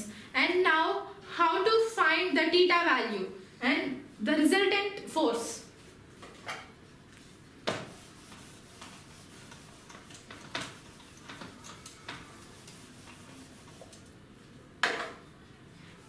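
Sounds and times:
eraser rubbing on whiteboard: 0:07.1 - 0:14.2.

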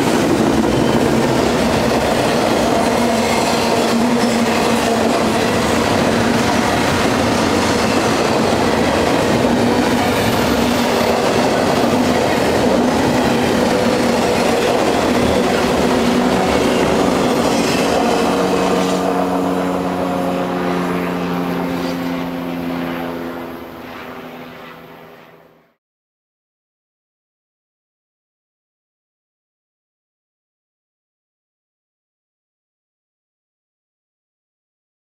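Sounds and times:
train wheels clattering on rail: 0:00.0 - 0:19.2
steady ringing of rails: 0:00.0 - 0:24.7.

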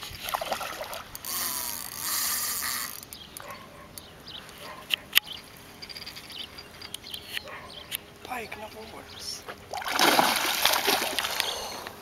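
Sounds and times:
fishing reel buzzing: 0:01.1 - 0:03.2
fish splashing at surface: 0:09.7 - 0:11.6.

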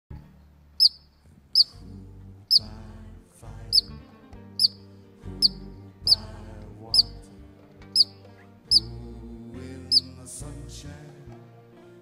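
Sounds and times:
background music: 0:00.1 - 0:12.0
ground squirrel alarm chirps: 0:00.8 - 0:01.8, 0:02.5 - 0:02.7, 0:03.7 - 0:04.0, 0:04.6 - 0:04.8, 0:05.4 - 0:06.3, 0:06.9 - 0:07.2, 0:08.0 - 0:09.0, 0:09.9 - 0:10.2.

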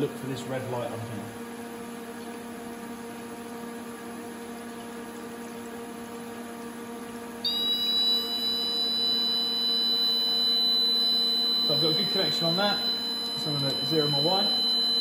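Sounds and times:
machine electrical hum: 0:00.0 - 0:15.0
high-pitched electronic buzzer tone: 0:07.4 - 0:15.0.

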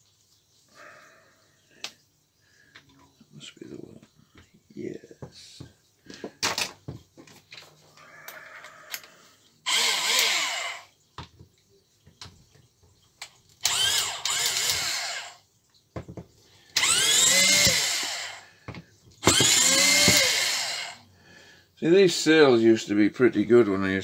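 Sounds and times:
cordless drill unscrewing screws: 0:09.7 - 0:10.8, 0:13.6 - 0:15.3, 0:16.8 - 0:18.4, 0:19.2 - 0:21.0.

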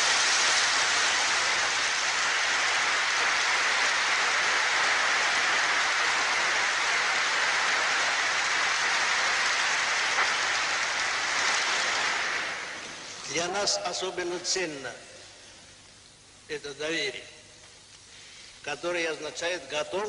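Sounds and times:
audience applause: 0:00.0 - 0:13.3.

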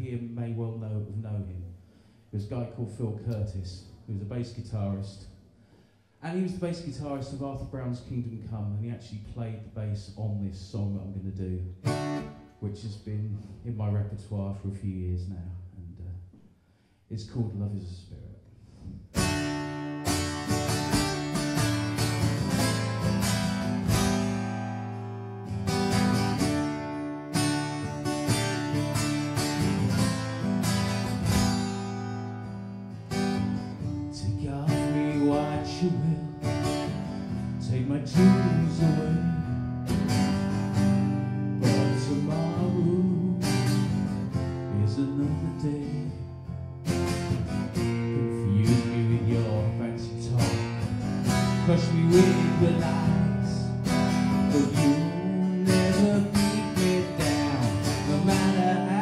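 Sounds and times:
acoustic guitar strumming chords: 0:11.8 - 0:12.6, 0:19.1 - 0:59.0.

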